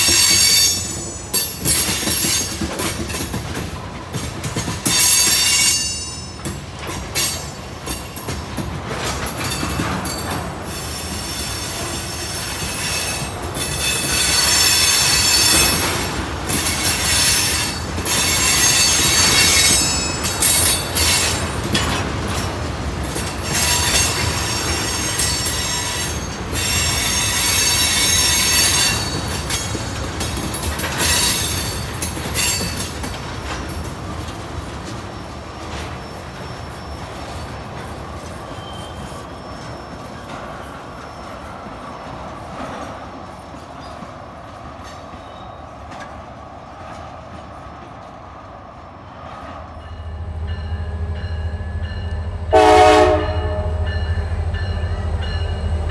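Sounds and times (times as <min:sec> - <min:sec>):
train wheels rumbling on rails: 0:00.0 - 0:55.9
wheel squeal: 0:35.2 - 0:37.5, 0:38.4 - 0:41.5.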